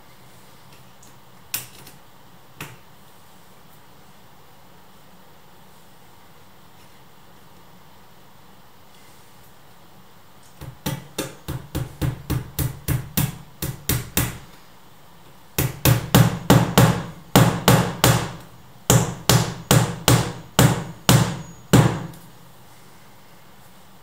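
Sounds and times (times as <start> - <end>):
hammer striking door edge: 15.6 - 22.1.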